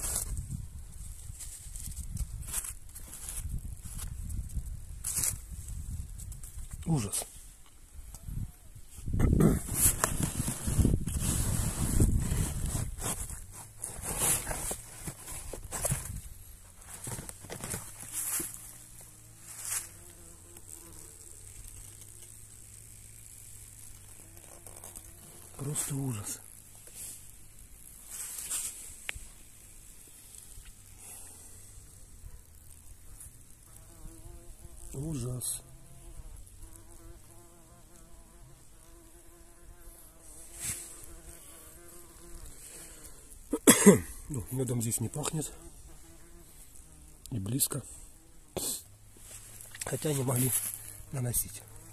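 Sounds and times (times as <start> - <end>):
short rustle: 8.9 - 18.8, 24.5 - 29.5, 40.2 - 41.3, 49.1 - 51.3
wasps buzzing: 16.4 - 43.8, 44.7 - 47.3.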